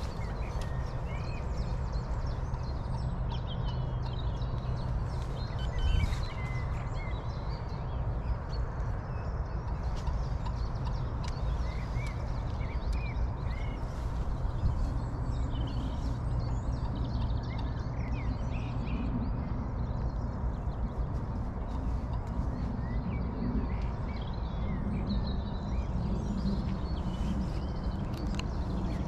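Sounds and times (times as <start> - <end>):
songbirds chirping and trilling: 0.0 - 29.0
steady low rumble: 0.0 - 29.0.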